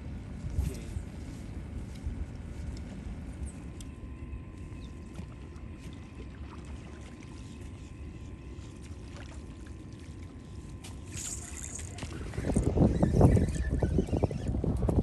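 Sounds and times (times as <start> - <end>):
wind buffeting microphone: 11.9 - 15.0.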